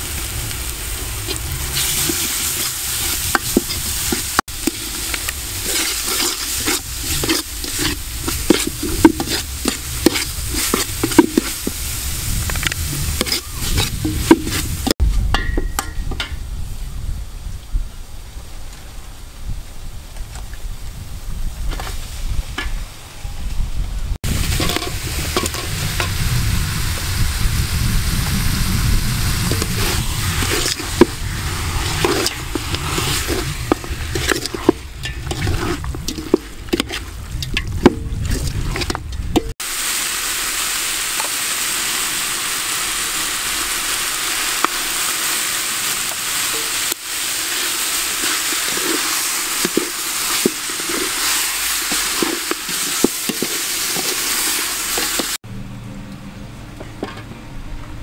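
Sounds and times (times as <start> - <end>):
low rumble: 0.0 - 5.7, 6.8 - 15.4, 23.6 - 39.6
meat frying in a pot: 0.0 - 15.0, 24.2 - 55.4
metal spoon scraping a pot: 1.2 - 11.7, 13.0 - 14.8, 24.5 - 26.1, 29.5 - 39.5, 48.2 - 55.3.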